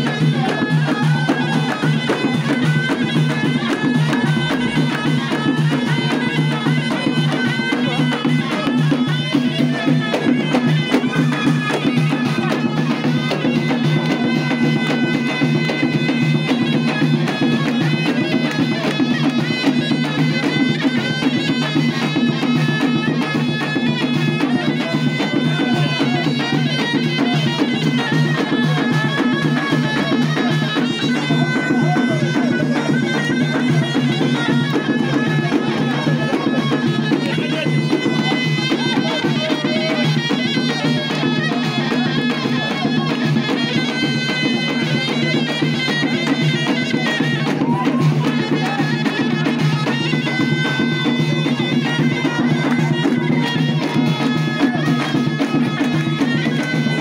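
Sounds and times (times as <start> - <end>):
drum beating: 0.0 - 57.0
reed wind instrument melody: 0.0 - 57.0.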